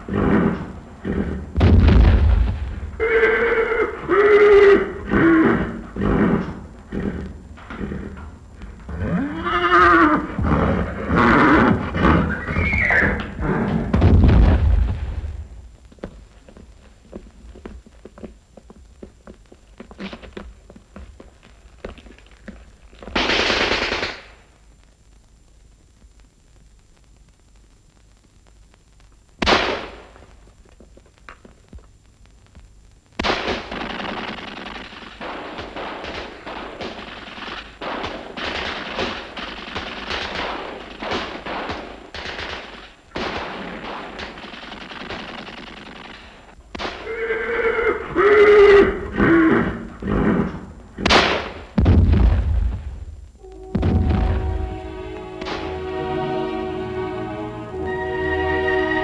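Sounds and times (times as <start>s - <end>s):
loud gunshot: 1.6s - 2.8s, 29.4s - 30.1s, 33.2s - 46.0s, 51.0s - 53.0s, 53.7s - 54.6s
heavy bangs: 1.6s - 3.1s, 51.0s - 56.1s
rapid dense gunfire: 23.2s - 24.4s, 29.4s - 30.1s, 33.2s - 47.0s, 51.0s - 53.0s.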